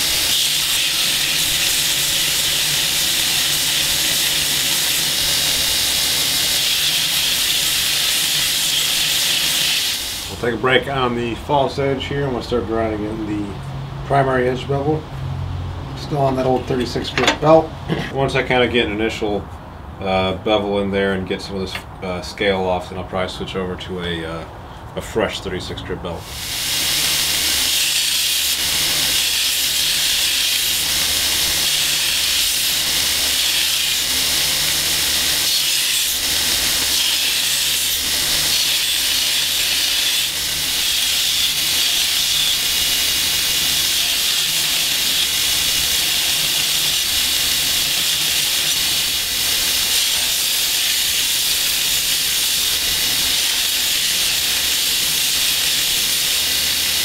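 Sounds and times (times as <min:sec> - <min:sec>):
abrasive belt grinding steel: 0:00.0 - 0:13.2, 0:26.2 - 0:57.0
grinder motor hum: 0:26.3 - 0:57.0.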